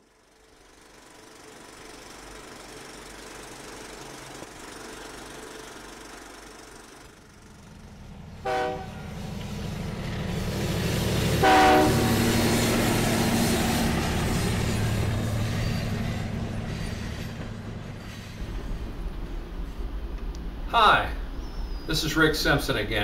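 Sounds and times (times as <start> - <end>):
locomotive engine rumble: 0.3 - 23.0
locomotive horn blasts: 8.4 - 9.2, 11.4 - 12.3.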